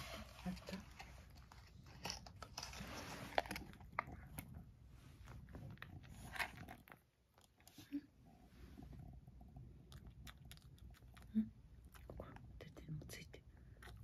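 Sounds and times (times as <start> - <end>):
cat chewing treat: 1.2 - 4.6, 9.0 - 12.5.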